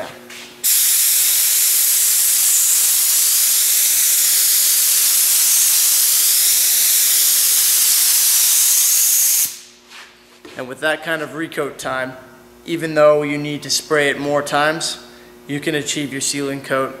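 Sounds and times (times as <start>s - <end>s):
spray gun hissing: 0.6s - 9.7s.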